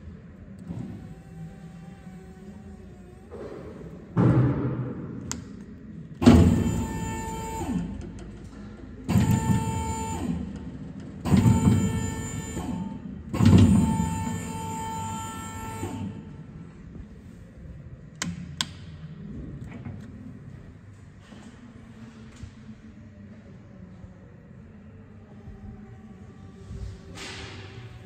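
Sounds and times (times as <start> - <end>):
electric lift motor whining: 0.0 - 4.1, 6.2 - 16.7.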